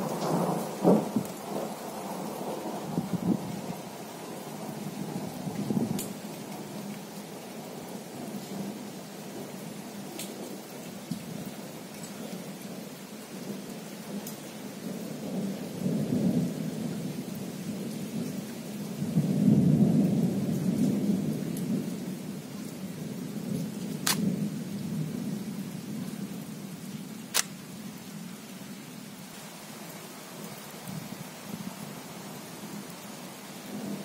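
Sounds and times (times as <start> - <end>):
steady rain: 0.0 - 34.0
rolling thunder: 19.0 - 21.9
sharp ticks: 27.3 - 27.5.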